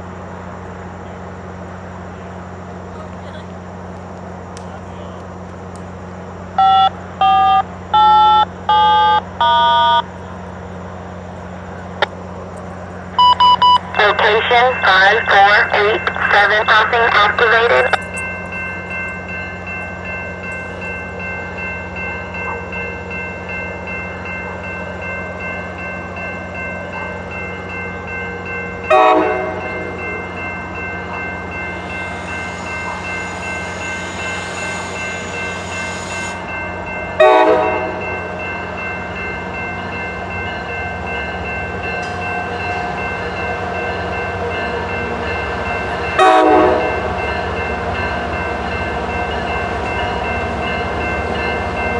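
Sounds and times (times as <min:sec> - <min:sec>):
diesel locomotive rumble: 0:00.0 - 0:51.9
railroad crossing bell ringing: 0:05.4 - 0:51.9
train horn blasts: 0:28.9 - 0:30.0, 0:37.2 - 0:38.0, 0:46.2 - 0:47.1.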